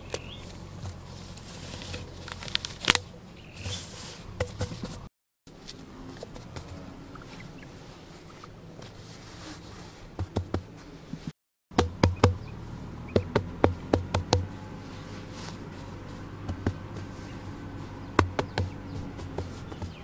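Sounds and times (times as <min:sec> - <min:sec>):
hands slapping dry soil: 0:01.7 - 0:03.0, 0:18.1 - 0:20.0.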